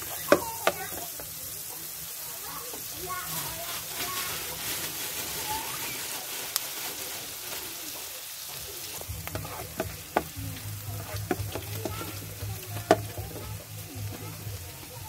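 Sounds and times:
onion sizzling in oil: 0.0s - 15.0s
spoon knocking and scraping pan: 0.2s - 1.2s, 8.9s - 14.4s.

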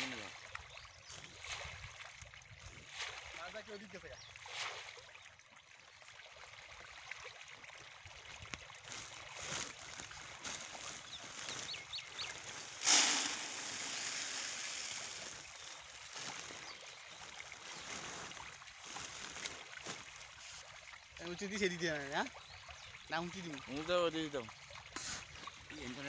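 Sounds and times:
fish thrashing and splashing: 8.6s - 21.0s
loud splash: 12.6s - 16.4s.

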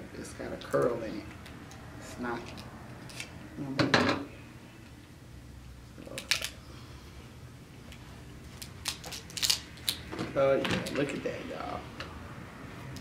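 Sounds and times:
crab shell cracking: 6.1s - 6.6s, 8.6s - 10.1s.

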